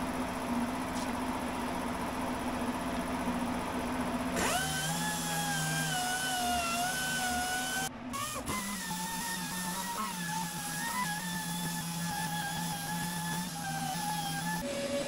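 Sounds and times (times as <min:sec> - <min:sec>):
pneumatic orbital sander whine: 0:04.3 - 0:15.0.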